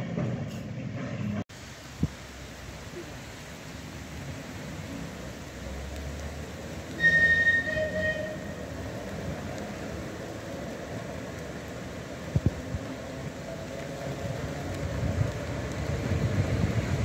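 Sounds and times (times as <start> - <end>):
tram running rumble: 0.0 - 17.0
tram horn toot: 6.9 - 9.0.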